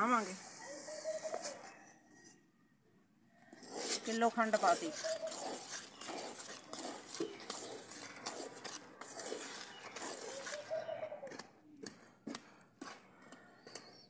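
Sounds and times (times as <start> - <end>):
metal spatula scraping a pan: 3.5 - 10.9.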